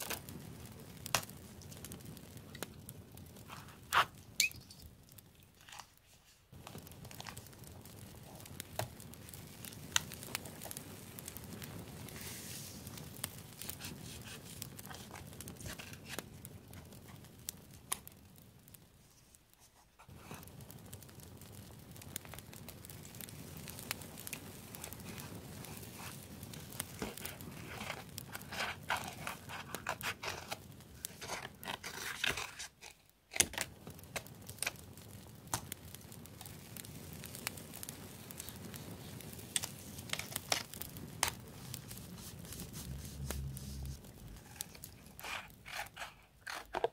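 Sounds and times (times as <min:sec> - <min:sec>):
small clicks and crackles: 0:00.0 - 0:46.9
paper crinkling and rustling: 0:03.5 - 0:04.2, 0:05.5 - 0:07.5, 0:12.1 - 0:13.0, 0:13.6 - 0:17.2, 0:24.7 - 0:34.8, 0:38.3 - 0:46.9
scissors snipping paper: 0:44.4 - 0:46.9.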